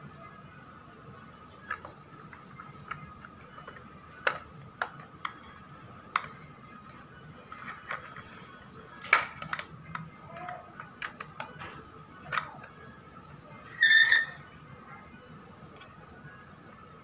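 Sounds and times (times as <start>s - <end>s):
clicks of hard plastic parts: 1.6s - 6.5s, 9.0s - 12.8s.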